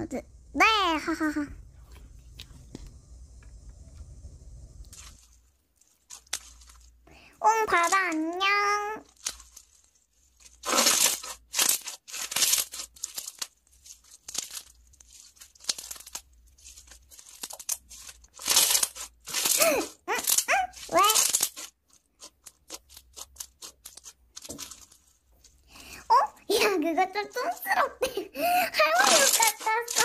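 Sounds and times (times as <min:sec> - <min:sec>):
sticky wet crackling: 0:04.8 - 0:30.0
hands squishing slime: 0:09.0 - 0:26.0.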